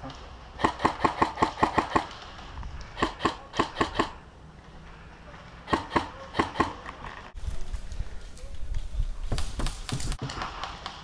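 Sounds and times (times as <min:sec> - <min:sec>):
airsoft gun shots: 0:00.6 - 0:02.2, 0:03.0 - 0:04.2, 0:05.7 - 0:06.8.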